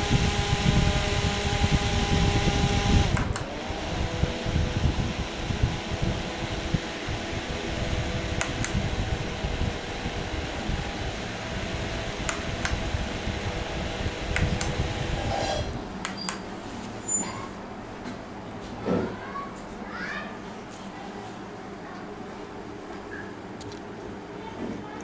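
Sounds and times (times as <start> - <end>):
desk fan motor whirring: 0.0 - 18.4
push-button switch clicks: 8.4 - 8.8, 12.2 - 12.8, 14.3 - 14.8.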